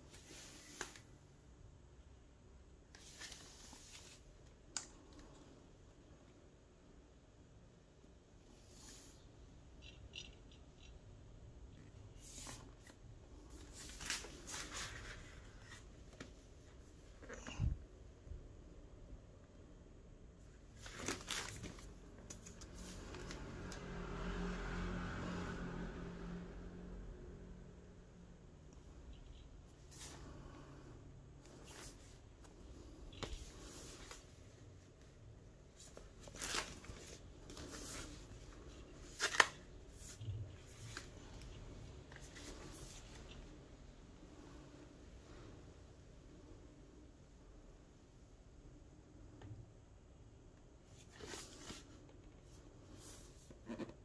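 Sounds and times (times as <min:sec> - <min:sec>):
packaging rustling: 0:20.8 - 0:23.4, 0:35.8 - 0:41.2.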